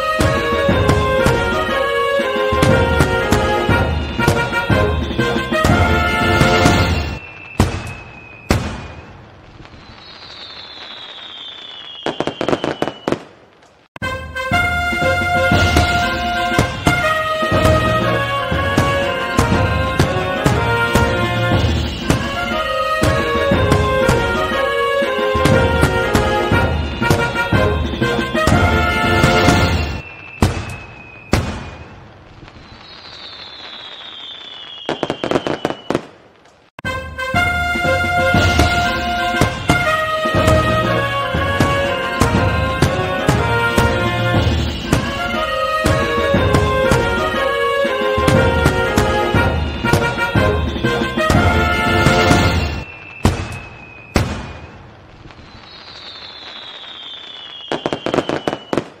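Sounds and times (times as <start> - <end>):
firework bangs: 0.0 - 59.0
firework crackling pops: 2.6 - 14.1, 15.5 - 36.9, 38.3 - 59.0
crackling pops: 6.4 - 14.0, 29.2 - 36.8, 52.1 - 59.0
firework whistle falling in pitch: 9.8 - 13.3, 32.6 - 36.1, 36.8 - 59.0.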